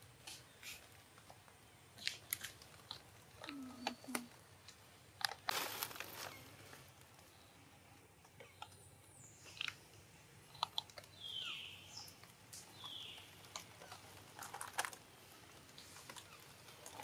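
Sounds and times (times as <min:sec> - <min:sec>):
faint outdoor background: 0:00.0 - 0:17.0.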